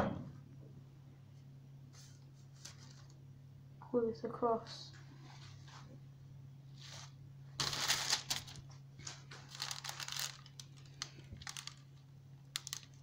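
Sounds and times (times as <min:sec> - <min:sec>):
paper crinkling and rustling: 0:02.0 - 0:03.2, 0:06.8 - 0:13.0.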